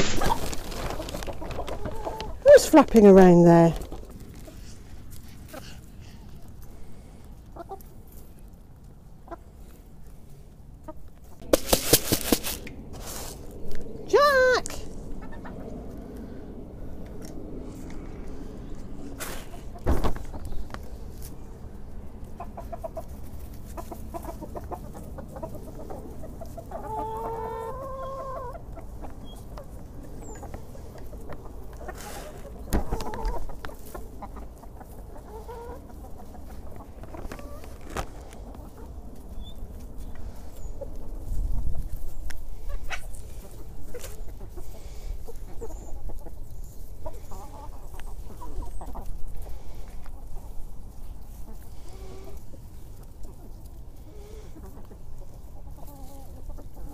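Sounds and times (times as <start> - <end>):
hens clucking: 0.0 - 56.9
hen rising call: 12.4 - 19.1.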